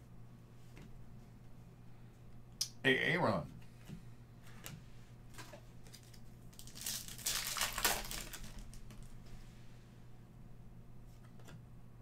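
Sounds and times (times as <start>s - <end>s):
foil wrapper crinkling: 5.4s - 9.2s.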